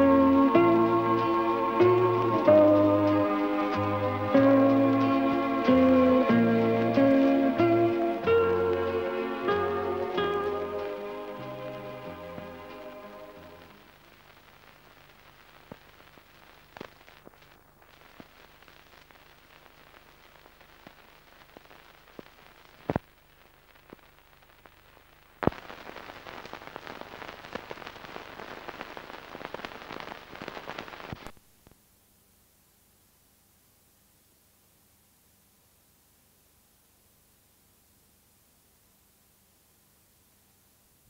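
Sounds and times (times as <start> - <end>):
videotape crackling and clicking: 0.0 - 31.8.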